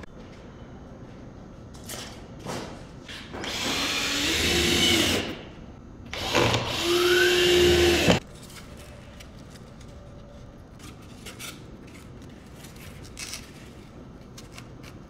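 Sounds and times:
cordless drill motor whine: 3.4s - 5.4s, 6.1s - 8.2s.

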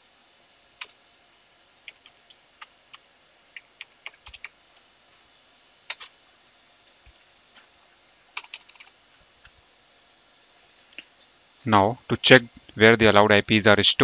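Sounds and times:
computer keyboard typing: 3.6s - 4.6s, 5.9s - 6.1s, 8.4s - 9.0s.

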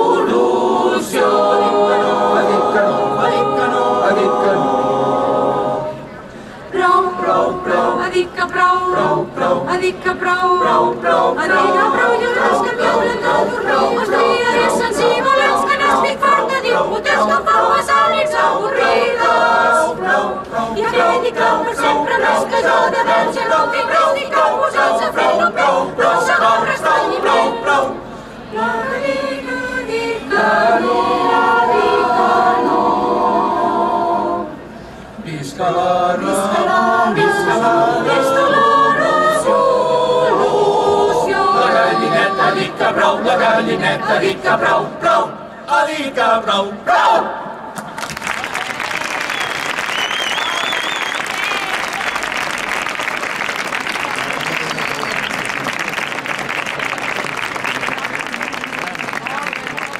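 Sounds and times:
crowd singing in unison: 0.0s - 48.0s.

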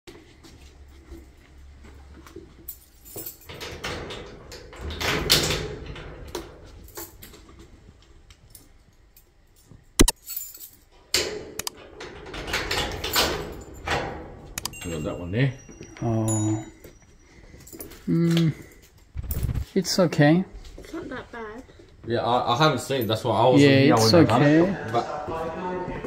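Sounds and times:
keys jangling: 2.6s - 7.7s, 8.4s - 11.0s, 12.1s - 19.6s
padlock rattling and clicking: 14.6s - 14.8s.

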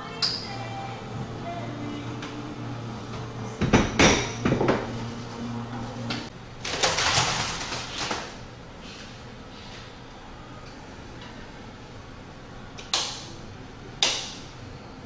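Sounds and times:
low machine hum: 0.0s - 15.0s
cups and equipment clinking: 3.6s - 5.0s.

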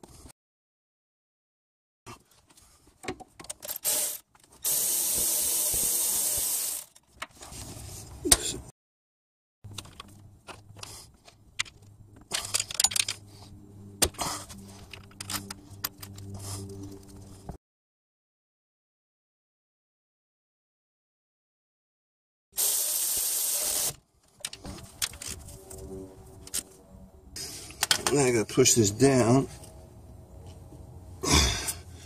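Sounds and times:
metal tool clicks and scrapes: 10.8s - 13.3s
loud steady hiss: 22.6s - 24.0s
low steady hum: 24.9s - 32.0s.

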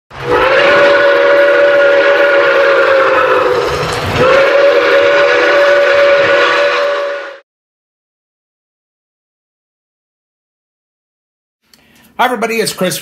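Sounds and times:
steam locomotive whistle: 0.1s - 7.4s.

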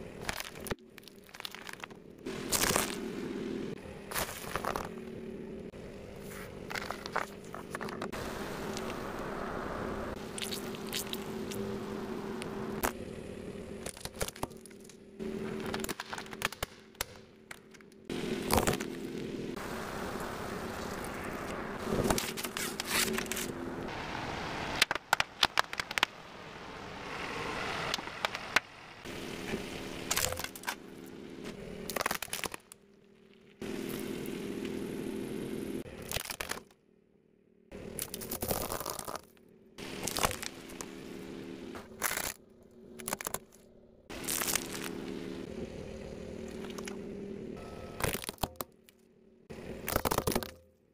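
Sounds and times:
car hum: 1.6s - 36.0s, 39.5s - 48.2s
toys cracking under tyre: 15.6s - 19.0s, 24.8s - 26.3s, 31.8s - 32.8s, 35.9s - 36.8s, 48.0s - 49.0s, 49.8s - 50.7s.

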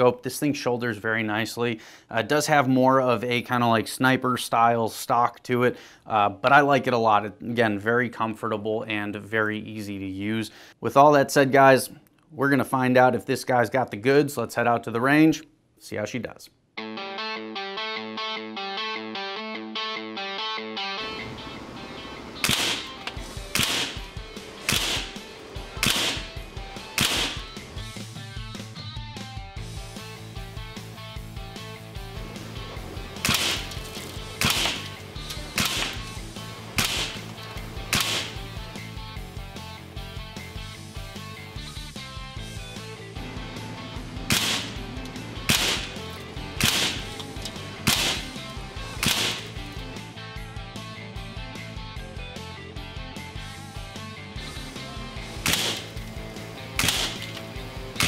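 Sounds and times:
background music: 16.8s - 58.0s
air rifle shots: 22.4s - 27.8s, 33.1s - 38.6s, 44.2s - 49.7s, 55.2s - 58.0s.

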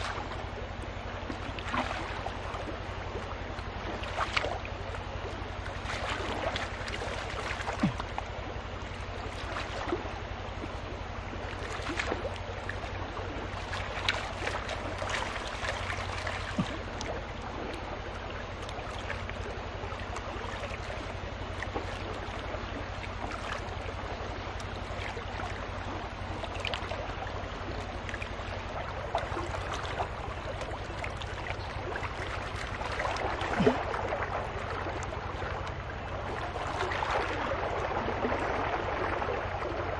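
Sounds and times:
water sloshing in a pan: 0.0s - 10.0s.

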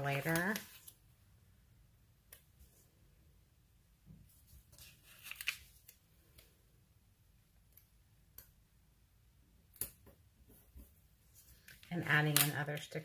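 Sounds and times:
paper sticker peeling crackle: 4.8s - 6.0s.

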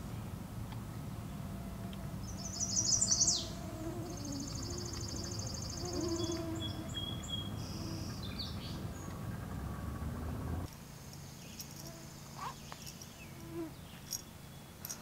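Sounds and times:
songbird trilling: 2.2s - 10.2s.

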